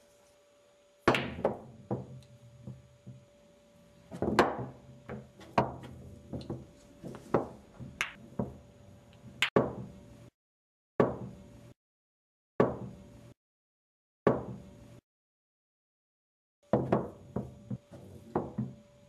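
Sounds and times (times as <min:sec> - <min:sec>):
pool balls clacking: 0:01.1 - 0:03.2.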